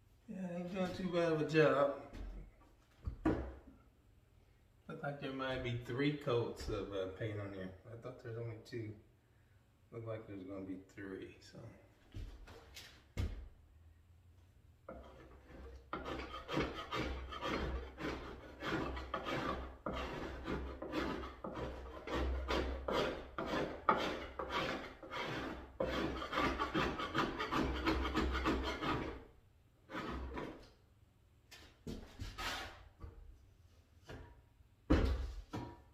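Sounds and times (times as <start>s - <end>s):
paint scraper scraping wood: 14.9s - 29.3s, 29.9s - 30.7s.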